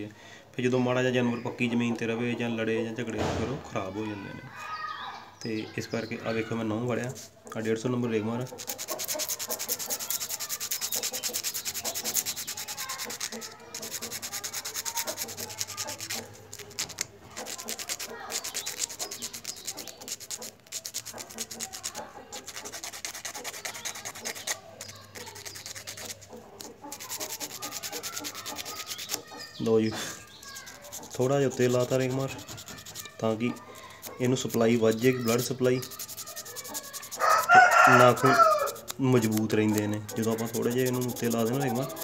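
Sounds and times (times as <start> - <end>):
sandpaper rubbing on toenail: 8.4 - 42.0.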